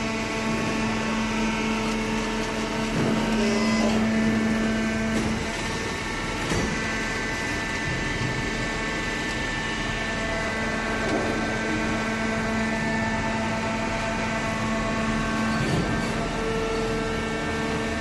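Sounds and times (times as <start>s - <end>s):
baler motor and pump drone: 0.0s - 18.0s.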